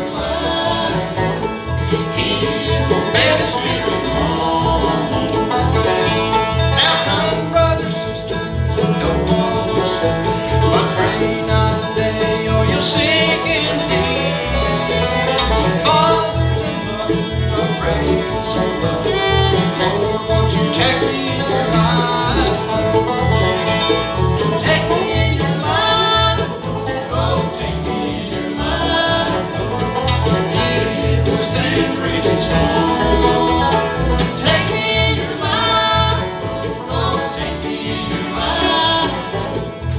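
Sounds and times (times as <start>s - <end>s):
acoustic guitar: 0.0s - 39.9s
banjo: 0.0s - 39.9s
fiddle: 0.0s - 39.9s
mandolin: 0.0s - 39.9s
upright bass plucking: 0.0s - 39.9s.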